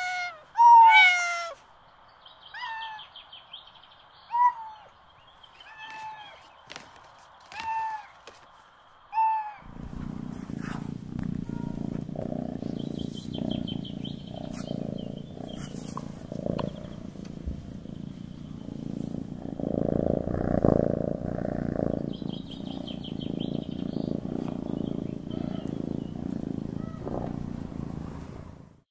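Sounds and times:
cat meowing: 0.0 - 1.6, 2.5 - 3.0, 4.3 - 4.9, 5.6 - 6.4, 7.5 - 8.2, 9.1 - 12.5, 23.8 - 25.9, 26.5 - 27.4
cat purring: 9.6 - 28.8
bird twittering: 11.5 - 18.7, 21.9 - 27.1.

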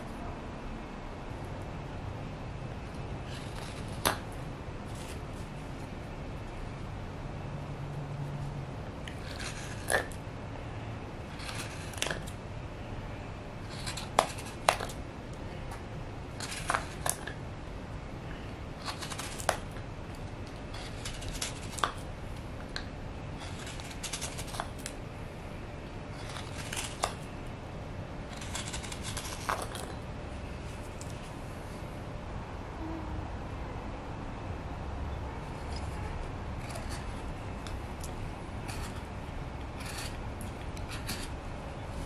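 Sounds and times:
low background noise: 0.0 - 42.0
knife scraping wood: 3.2 - 4.2, 9.0 - 10.2, 11.3 - 12.4, 13.6 - 15.0, 16.4 - 17.4, 18.8 - 19.8, 20.6 - 22.1, 22.7 - 24.9, 26.1 - 27.3, 28.3 - 30.0, 35.5 - 41.4.

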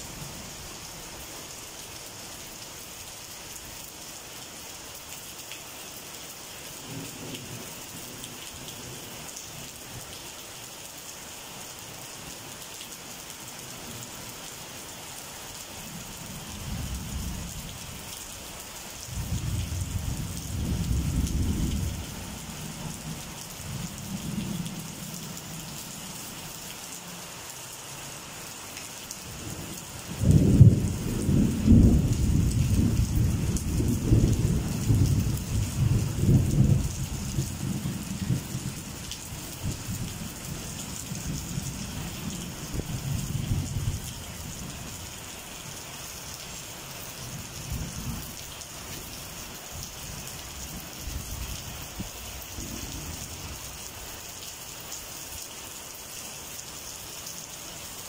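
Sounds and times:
steady rain falling: 0.0 - 58.0
rolling thunder: 19.1 - 22.0, 30.2 - 38.5.

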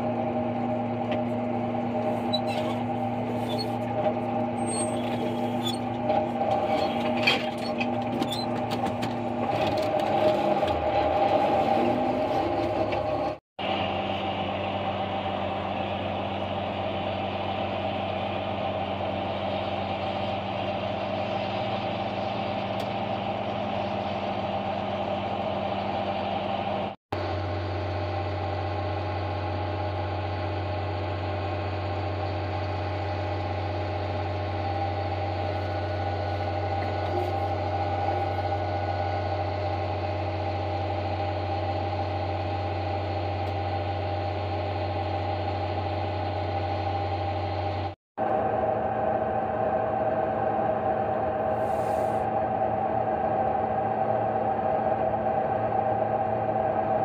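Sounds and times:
forage harvester engine: 0.0 - 57.0
wagon beaters and conveyor humming: 32.5 - 57.0.

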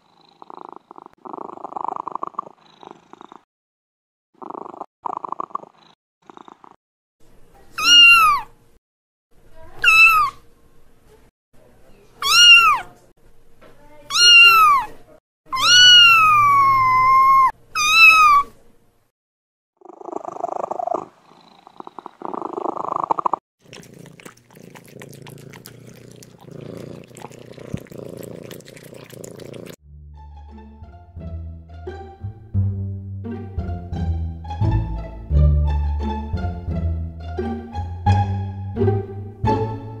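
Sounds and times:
kitten purring: 0.0 - 3.5, 4.4 - 6.8, 19.8 - 29.8
kitten meowing: 7.8 - 8.5, 9.8 - 10.4, 12.2 - 12.9, 14.1 - 18.5.

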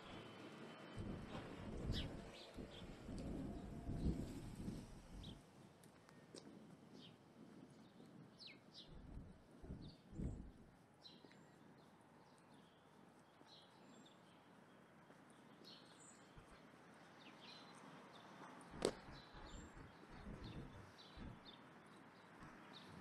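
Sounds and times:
small birds chirping: 6.0 - 23.0
soft low thumps: 9.0 - 10.8, 18.8 - 21.4.

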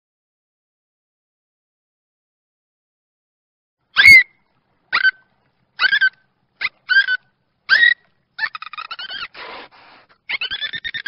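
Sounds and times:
dolphin chirps: 5.8 - 11.0.

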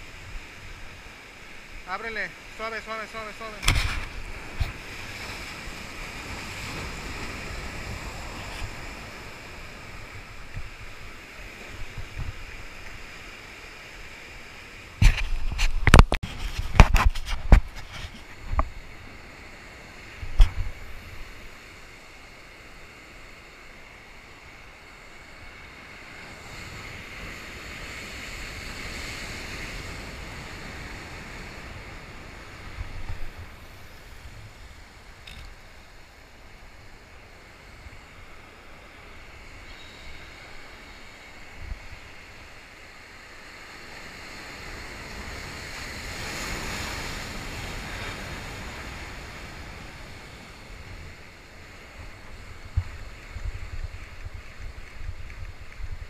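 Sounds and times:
surf washing over concrete: 0.0 - 56.0
wind on microphone: 3.6 - 13.0, 14.9 - 19.2, 20.0 - 21.6, 26.2 - 35.7, 39.2 - 42.6, 43.8 - 56.0.

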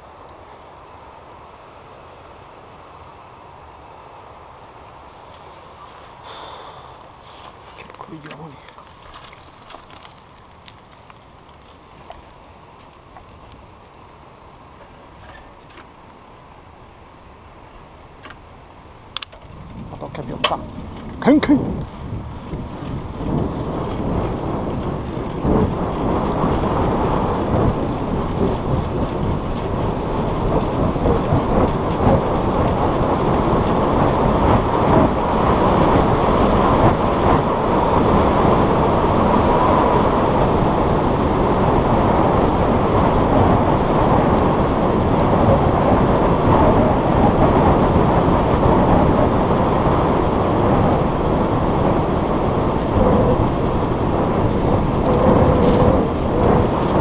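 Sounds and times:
wind buffeting microphone: 1.0 - 57.0.

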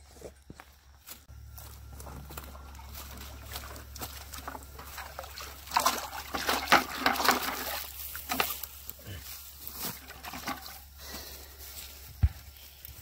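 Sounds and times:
fish splashing in bucket: 2.6 - 8.8, 9.9 - 10.9.

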